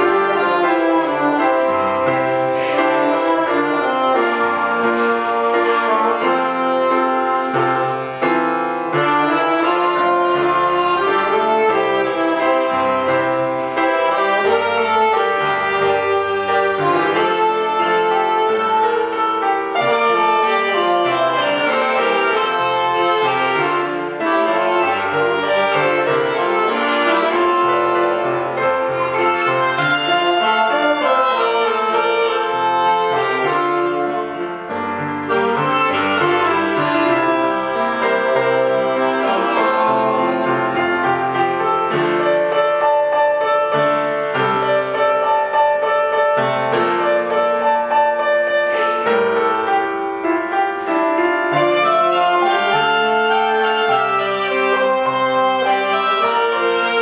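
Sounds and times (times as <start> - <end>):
clarinet and saxophone melody: 0.0 - 57.0
trombone holding notes: 9.0 - 41.7, 51.1 - 57.0.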